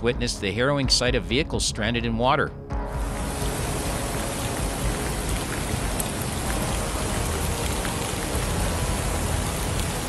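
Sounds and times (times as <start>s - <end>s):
heavy rain hissing: 3.0s - 10.0s
running floodwater: 3.0s - 10.0s.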